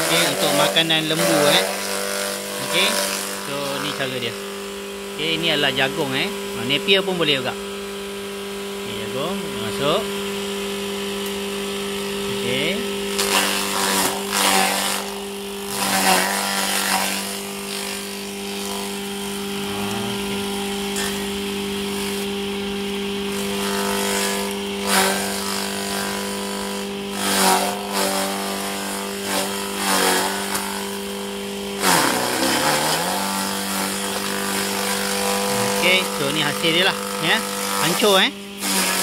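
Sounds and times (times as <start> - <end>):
corn stalks shredding: 0.0 - 4.2, 12.6 - 15.1, 15.7 - 18.9, 23.6 - 31.0, 31.8 - 39.0
chopper motor hum: 0.0 - 39.0.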